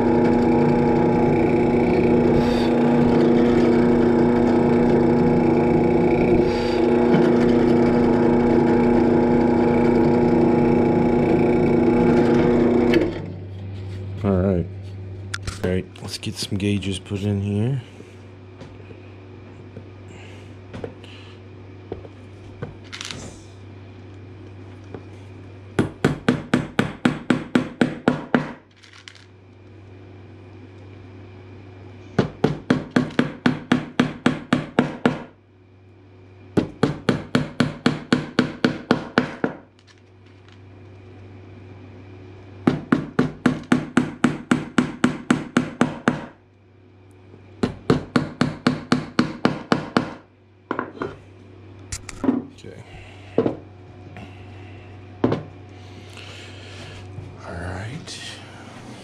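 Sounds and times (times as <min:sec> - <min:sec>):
steady low hum: 0:00.0 - 0:59.0
hammer tapping wooden pegs: 0:32.2 - 0:35.3, 0:36.6 - 0:39.7, 0:42.7 - 0:46.4, 0:47.6 - 0:50.2.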